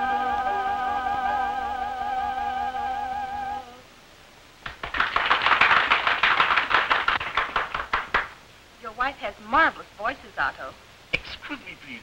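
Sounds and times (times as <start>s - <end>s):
woman singing with vibrato: 0.0s - 4.0s
small group clapping: 4.6s - 8.4s.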